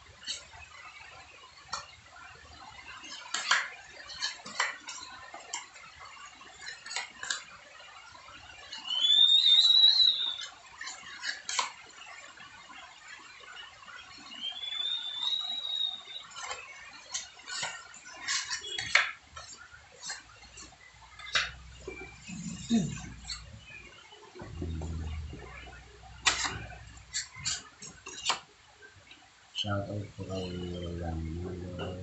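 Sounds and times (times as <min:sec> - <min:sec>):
trowel scraping and tapping on wall: 0:03.0 - 0:05.7, 0:16.4 - 0:22.6, 0:24.4 - 0:28.5.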